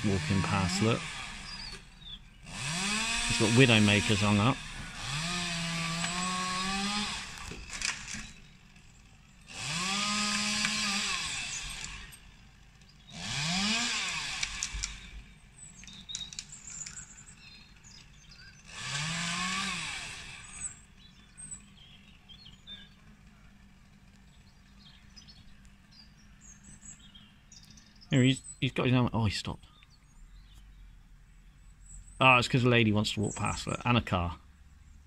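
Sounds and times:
chainsaw revving: 0:00.0 - 0:28.2.

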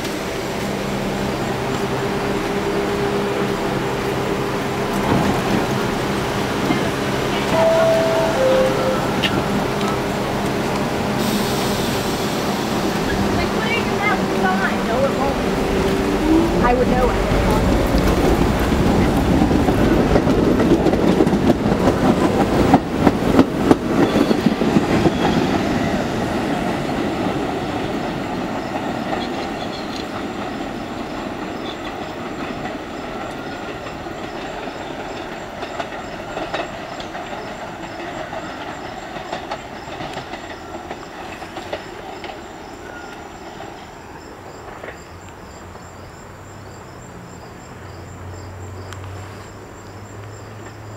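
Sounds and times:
train running rumble: 0:00.0 - 0:46.5
train wheels clicking over joints: 0:09.2 - 0:45.4.

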